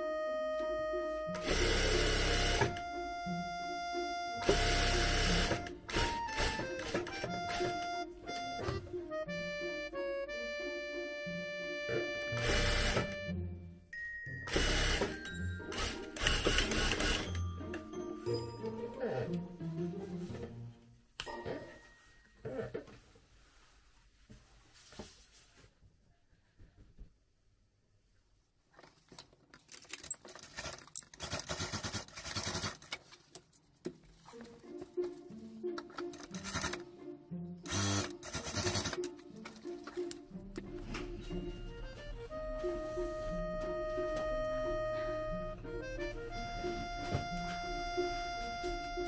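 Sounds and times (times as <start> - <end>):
light background music: 0.0 - 25.5, 32.5 - 49.0
sewing machine stitching: 1.4 - 2.8, 4.4 - 7.8, 12.4 - 13.2, 14.5 - 17.4, 31.2 - 32.9, 37.7 - 39.1
cloth rustling: 23.0 - 25.8.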